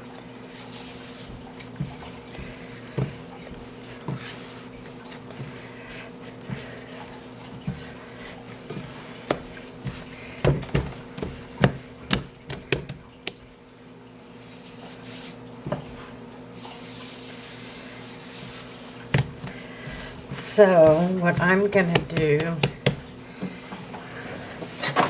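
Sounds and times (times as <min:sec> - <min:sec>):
steady low hum: 0:00.0 - 0:24.9
dough kneaded and slapped by hand: 0:00.8 - 0:13.4, 0:19.1 - 0:23.1.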